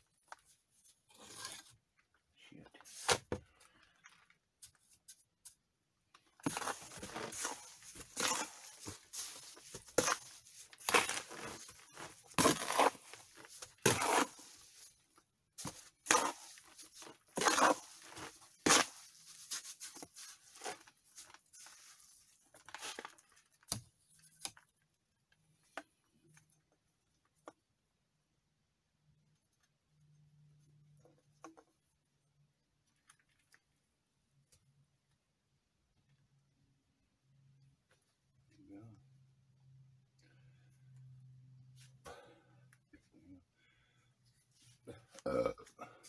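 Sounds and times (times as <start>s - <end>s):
trowel scraping mortar on bricks: 1.1s - 1.8s, 6.4s - 15.0s, 15.6s - 21.7s.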